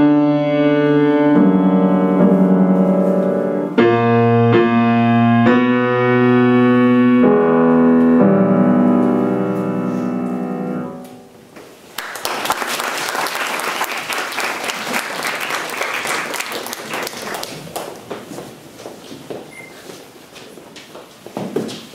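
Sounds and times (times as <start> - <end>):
piano chords ringing: 0.0 - 11.6
audience applause: 12.0 - 18.1.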